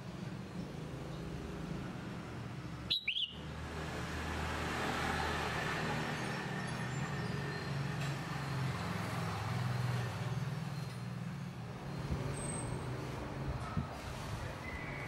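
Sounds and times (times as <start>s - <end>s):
faint high chirp: 2.9s - 3.4s.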